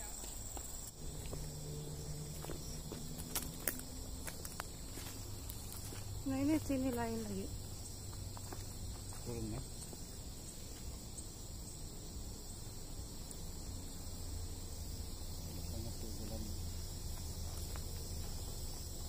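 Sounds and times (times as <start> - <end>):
faint footsteps on trail: 0.0 - 11.3, 16.8 - 19.0
insects droning: 0.0 - 19.0
low steady hum: 0.9 - 19.0.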